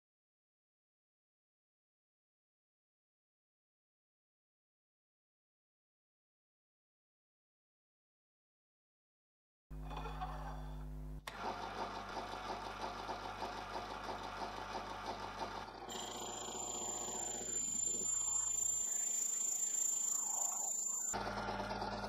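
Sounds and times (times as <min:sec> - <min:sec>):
metal lathe running: 0:11.3 - 0:22.0
high steady whine of lathe cutting: 0:15.9 - 0:22.0.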